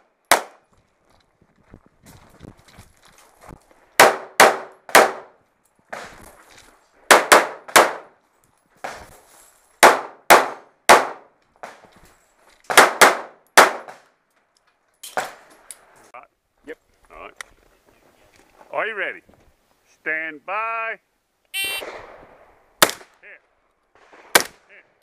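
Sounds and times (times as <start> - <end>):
pistol shots under metal roof: 0.3 - 0.6, 4.0 - 6.2, 7.1 - 8.1, 9.8 - 11.8, 12.7 - 14.0, 21.8 - 23.1, 24.0 - 24.7.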